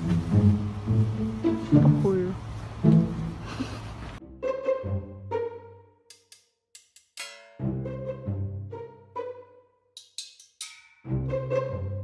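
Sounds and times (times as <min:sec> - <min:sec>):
sharp percussive hits: 0:06.1 - 0:07.8, 0:10.0 - 0:11.2.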